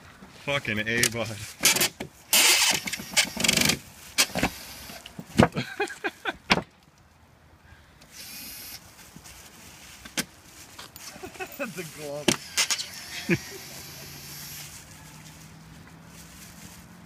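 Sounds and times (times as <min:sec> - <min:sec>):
cordless drill whirring: 0:08.1 - 0:08.8, 0:12.4 - 0:14.6.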